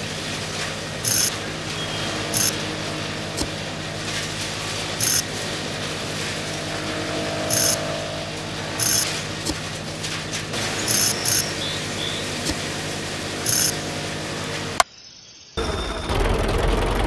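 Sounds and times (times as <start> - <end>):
small motor hum: 0.0 - 14.8
high-pitched bursts: 1.0 - 1.3, 2.3 - 2.6, 5.0 - 5.2, 6.5 - 9.8, 10.8 - 12.6, 13.4 - 13.8.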